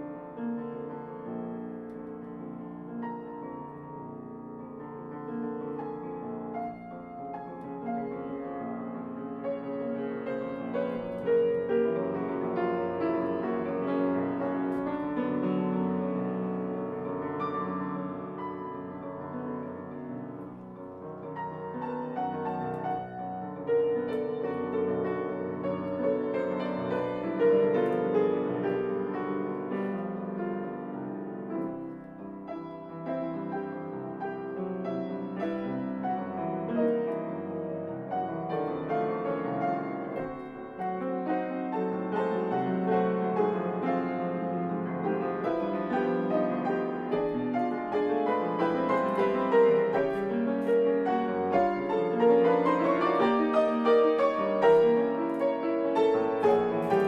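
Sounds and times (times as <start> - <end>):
classical piano piece: 0.0 - 57.0.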